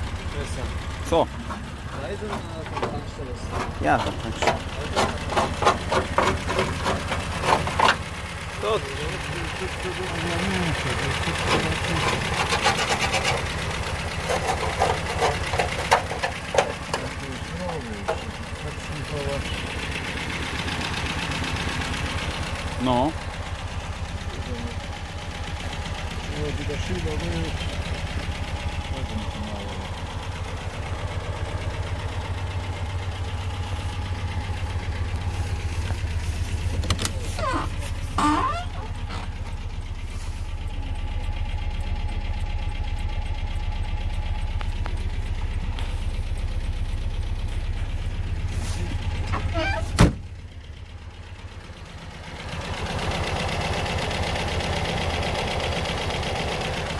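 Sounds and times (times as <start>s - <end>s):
car engine idling: 0.0s - 56.9s.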